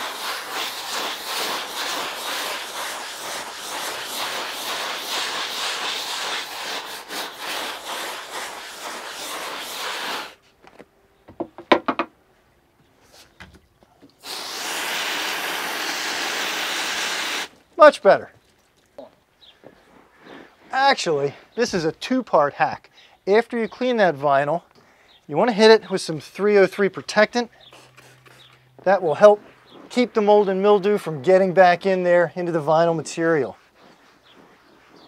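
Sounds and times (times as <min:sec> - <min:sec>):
hose spraying water: 0:00.0 - 0:10.4, 0:14.2 - 0:17.6
scrub brush scrubbing vinyl: 0:00.0 - 0:10.4, 0:14.2 - 0:17.5.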